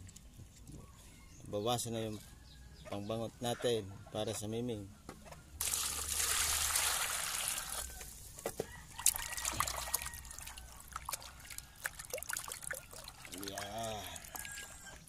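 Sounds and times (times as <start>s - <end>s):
water pouring into basin: 5.6s - 8.0s, 9.0s - 14.8s
hands splashing in water: 9.0s - 14.6s.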